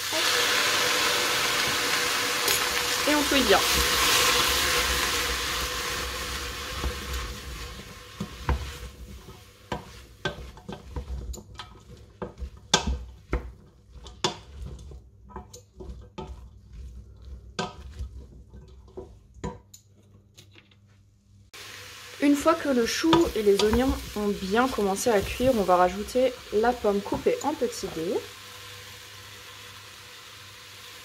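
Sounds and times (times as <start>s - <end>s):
vegetables sizzling in a pot: 0.0s - 19.7s, 21.5s - 31.0s
wooden spoon scraping a pot: 2.5s - 20.2s, 22.7s - 28.0s.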